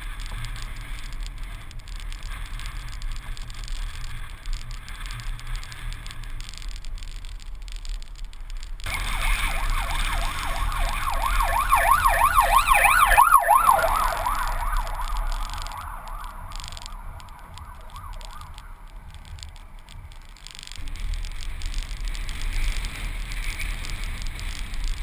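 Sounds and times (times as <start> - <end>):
emergency siren wailing: 8.9 - 19.5
wind rumble on microphone: 13.7 - 25.0.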